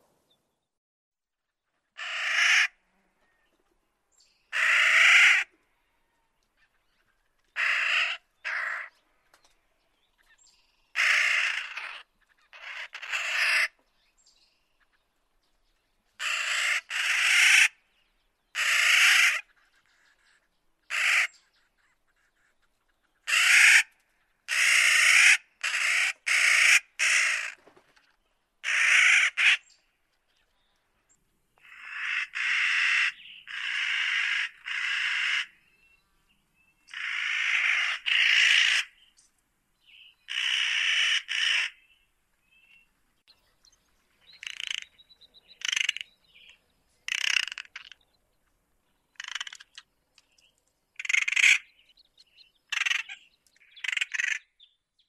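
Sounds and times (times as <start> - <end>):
bird giving harsh calls: 4.5 - 5.5, 7.6 - 8.9, 11.0 - 13.8, 16.2 - 17.8, 18.5 - 20.1, 20.9 - 21.4, 23.2 - 23.9, 28.6 - 29.7, 31.6 - 35.6, 36.9 - 39.0, 40.3 - 41.9, 44.4 - 45.0, 45.6 - 46.2, 47.0 - 48.0, 49.1 - 49.9, 51.0 - 51.8, 52.7 - 54.6.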